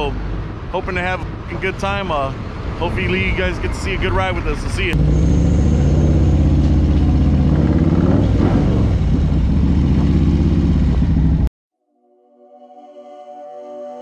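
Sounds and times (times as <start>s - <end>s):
motorcycle engine running loud: 5.0s - 11.5s.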